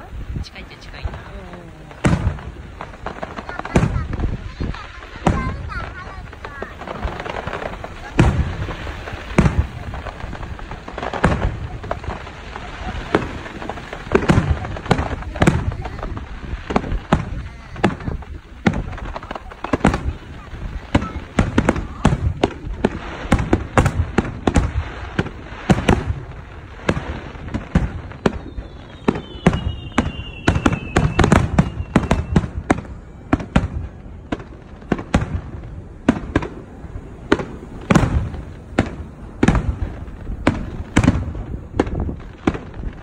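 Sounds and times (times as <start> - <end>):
fireworks bursting: 0.0 - 43.0
falling whistle: 28.4 - 32.4.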